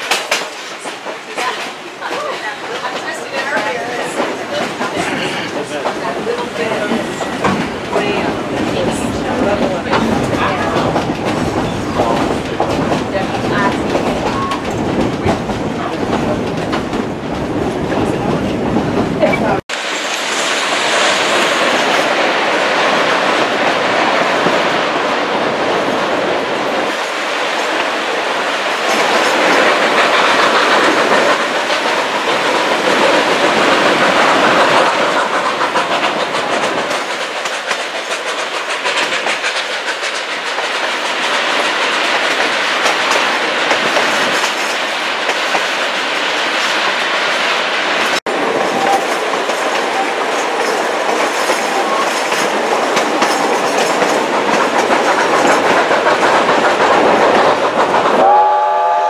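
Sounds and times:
train wheels clattering on rails: 0.0s - 59.0s
steady rushing noise: 2.4s - 59.0s.

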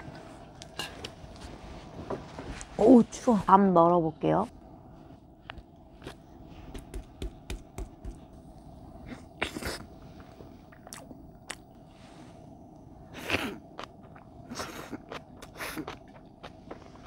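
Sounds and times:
chewing: 13.7s - 17.0s.

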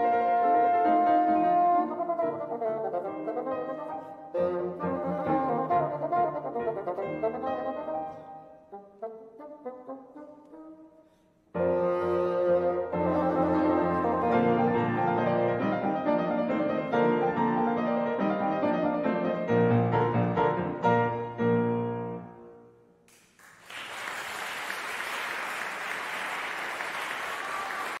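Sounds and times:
bassoon: 0.0s - 22.6s
piano: 0.0s - 23.1s
audience applauding: 23.1s - 28.0s.

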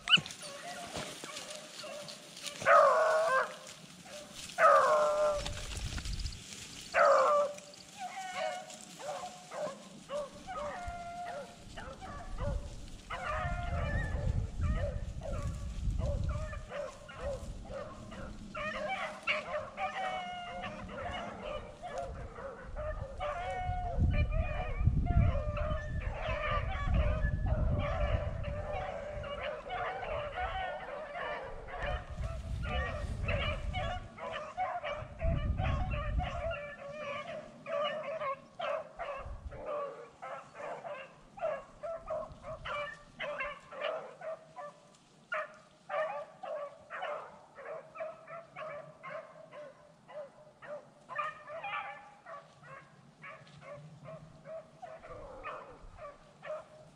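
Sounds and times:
dogs barking: 0.0s - 5.8s, 6.9s - 56.9s
hounds baying: 0.0s - 56.9s.

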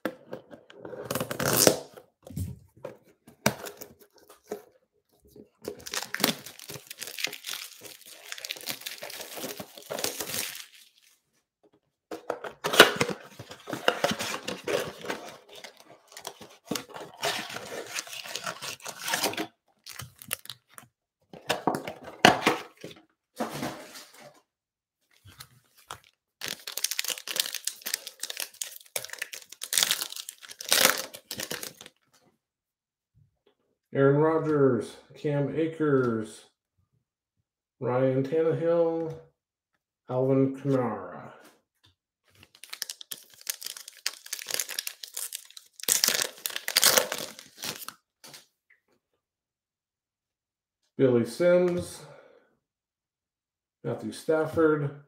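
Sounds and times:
packs and box tearing: 0.9s - 2.0s, 5.6s - 11.0s, 12.2s - 20.8s, 25.3s - 31.9s, 42.4s - 48.0s
foil wrappers crinkling: 5.7s - 11.1s, 13.4s - 20.8s, 25.3s - 31.9s, 42.4s - 47.9s.

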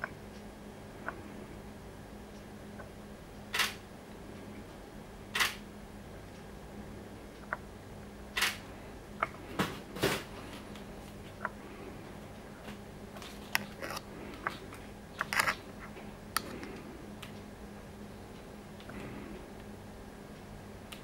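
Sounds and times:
camera shutter clicks: 3.6s - 3.8s, 8.4s - 8.6s.

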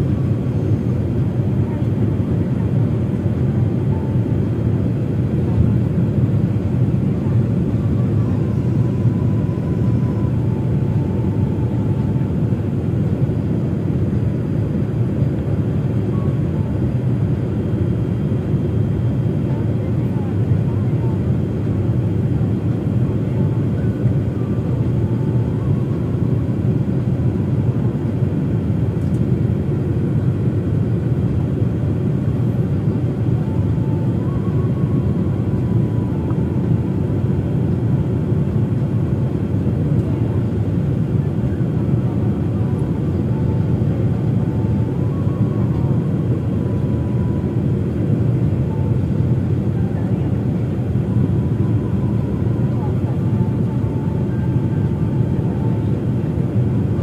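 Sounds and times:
faint whine: 0.0s - 57.0s
jet engine and airflow rumble: 0.0s - 57.0s.

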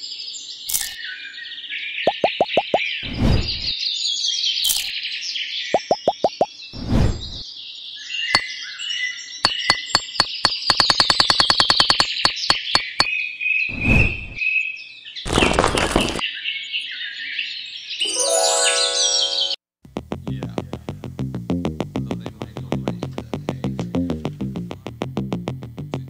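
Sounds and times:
birds chirping: 0.6s - 3.8s, 4.6s - 7.5s, 8.1s - 19.6s
rapid sharp clicks: 9.5s - 13.1s
music: 18.1s - 26.0s.

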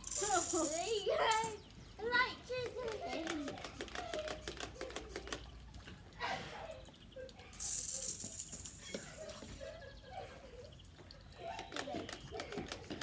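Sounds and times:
water spraying hiss: 0.0s - 1.7s, 7.3s - 9.7s
water gun pump clicking: 2.5s - 5.7s, 11.3s - 13.0s.

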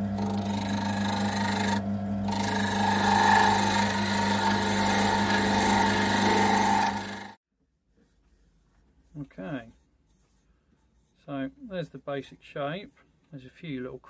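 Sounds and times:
turning tool cutting wood: 0.0s - 7.4s
wood lathe humming: 0.0s - 7.4s.

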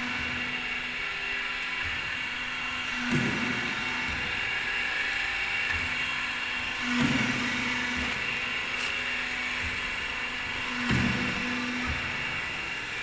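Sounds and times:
machine whirring: 0.0s - 13.0s
machine clunk and hum: 2.8s - 13.0s.

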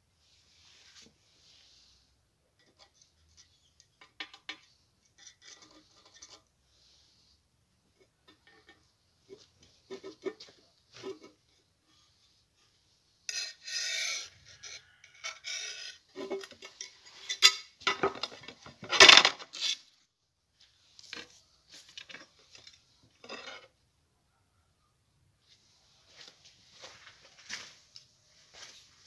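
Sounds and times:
metal bar scraping against board: 2.6s - 7.0s, 13.2s - 19.9s, 22.0s - 23.8s.

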